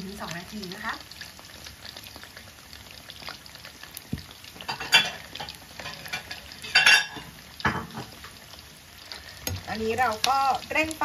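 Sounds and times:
chicken deep-frying in oil: 0:00.0 - 0:11.0
oil crackling pops: 0:01.2 - 0:05.6.

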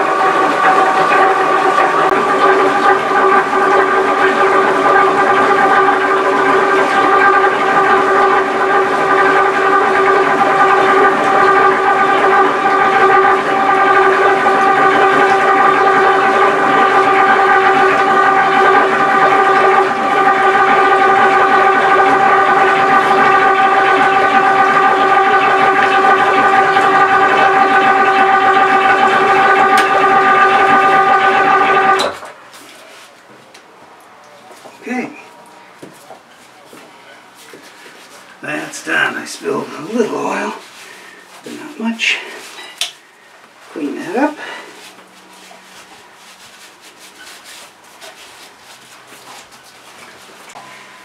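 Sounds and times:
electric pump whining: 0:00.0 - 0:51.0.

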